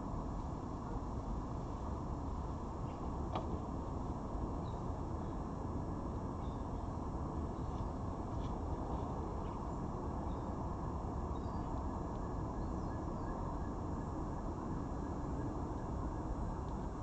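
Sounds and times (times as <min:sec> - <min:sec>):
outdoor background rumble: 0:00.0 - 0:17.0
faint high bird chirps: 0:06.4 - 0:06.8, 0:11.3 - 0:11.8.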